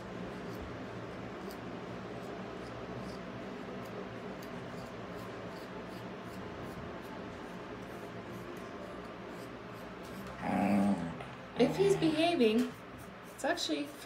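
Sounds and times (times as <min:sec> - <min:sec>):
grooming tool scratching through fur: 0:00.0 - 0:10.9, 0:11.6 - 0:14.0
low room hum: 0:00.0 - 0:14.0.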